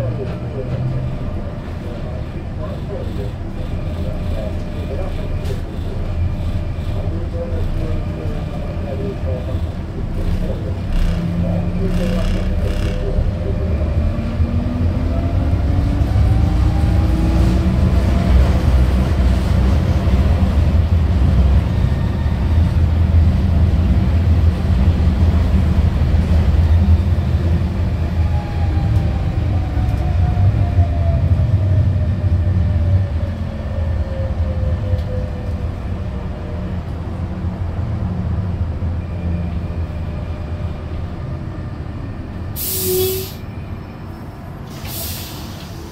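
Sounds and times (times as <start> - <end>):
tram motor whine: 0.0 - 45.9
tram wheels rumbling: 0.0 - 45.9
burst of hiss: 42.6 - 43.4, 44.7 - 45.8.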